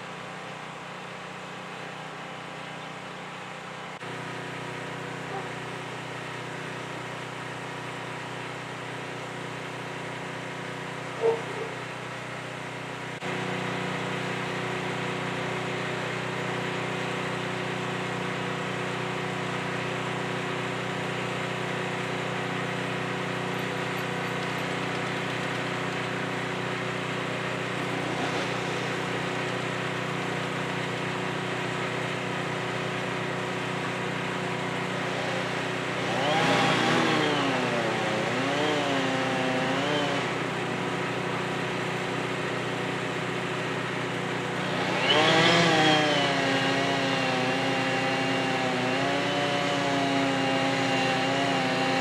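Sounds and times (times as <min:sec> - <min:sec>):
engine idling: 0:00.0 - 0:38.7.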